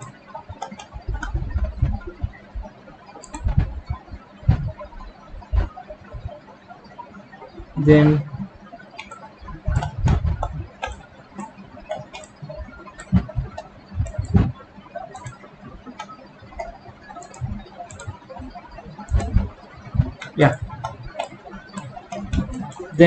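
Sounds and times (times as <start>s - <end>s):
computer mouse clicking: 0.0s - 6.3s, 9.0s - 18.2s, 19.0s - 23.0s
dull low knocks: 9.6s - 10.7s.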